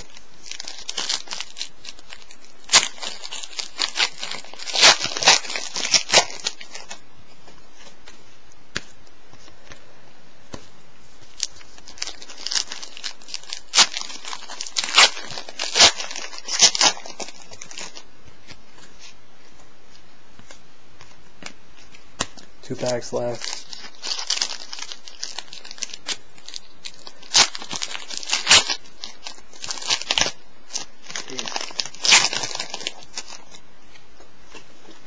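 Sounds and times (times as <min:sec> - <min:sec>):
foil pack tearing and crackling: 0:00.0 - 0:07.0, 0:11.3 - 0:18.1, 0:22.8 - 0:33.6.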